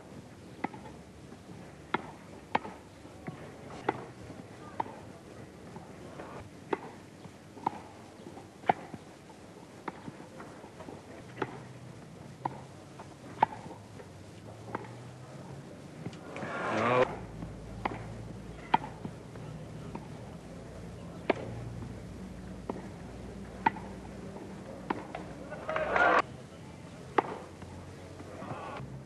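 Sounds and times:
tennis ball struck and bouncing: 0:00.5 - 0:01.0, 0:01.9 - 0:04.2, 0:07.6 - 0:08.0, 0:08.6 - 0:09.0, 0:09.8 - 0:10.2, 0:11.3 - 0:11.7, 0:12.4 - 0:13.9, 0:14.6 - 0:15.0, 0:16.0 - 0:20.2, 0:22.6 - 0:26.2, 0:27.1 - 0:27.6.

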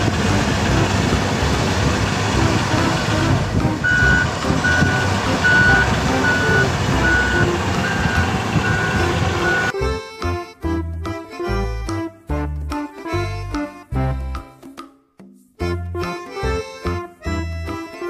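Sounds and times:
diesel dozer working under load: 0:00.0 - 0:09.7
reversing alarm beeping: 0:03.8 - 0:09.7.

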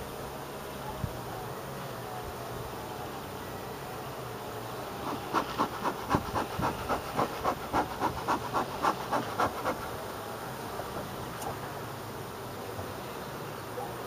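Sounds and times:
bellows puffing air: 0:05.0 - 0:10.0.

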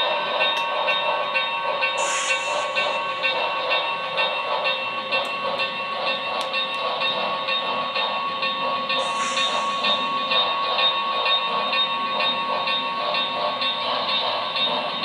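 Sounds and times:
model steam locomotive chuffing: 0:00.0 - 0:15.0
steam hiss: 0:01.8 - 0:06.3, 0:08.1 - 0:15.0.

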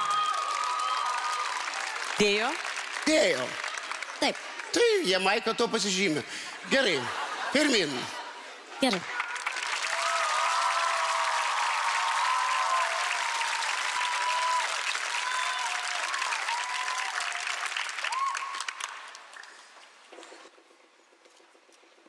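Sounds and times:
audience applauding: 0:00.0 - 0:06.1, 0:08.8 - 0:19.8.

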